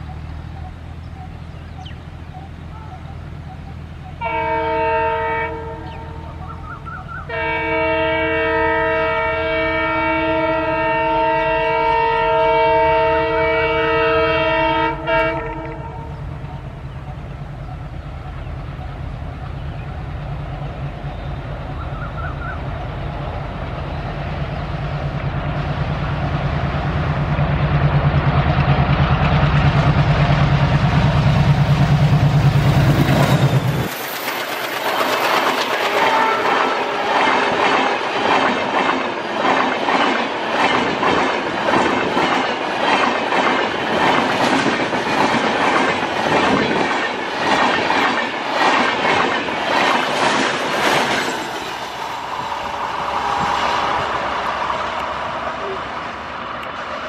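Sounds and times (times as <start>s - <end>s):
locomotive horn: 4.2s - 16.2s, 35.8s - 38.0s.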